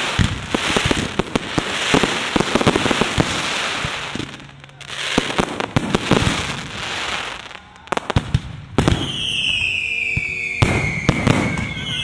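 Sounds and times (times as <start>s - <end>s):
crackling hiss: 0.0s - 11.5s
firework whistle falling: 6.7s - 12.0s.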